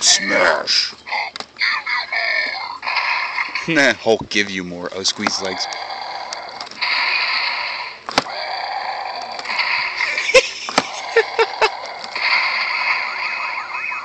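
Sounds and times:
toy crashing sound effects: 12.0s - 14.0s.

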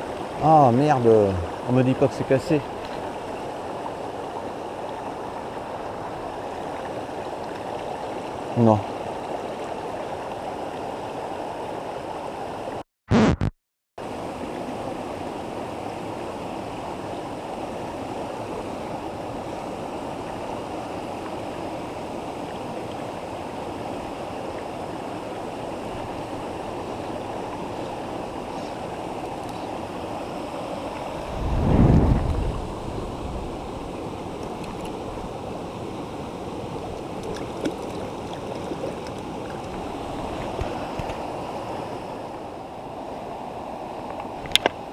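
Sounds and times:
water rushing over rocks: 14.0s - 44.9s.

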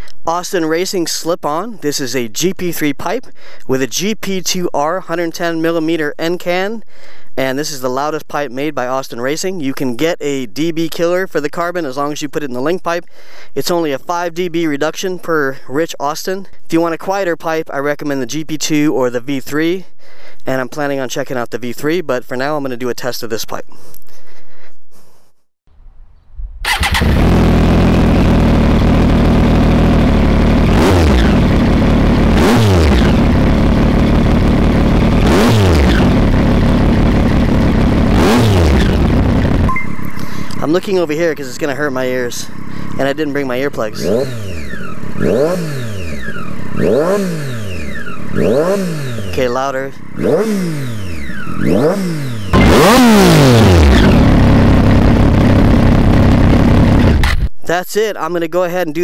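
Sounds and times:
motorcycle engine idling and revving: 26.6s - 57.5s.

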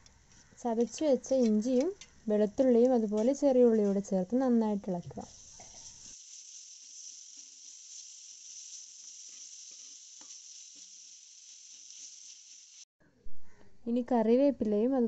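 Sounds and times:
vegetables sizzling in oil: 0.0s - 12.9s
metal spoon scraping pan: 8.7s - 10.9s.

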